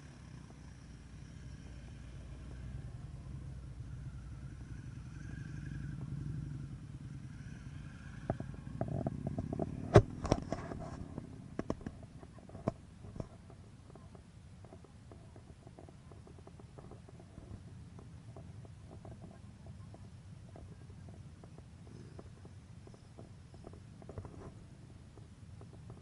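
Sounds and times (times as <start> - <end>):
motorcycle engine rumbling: 0.0 - 26.0.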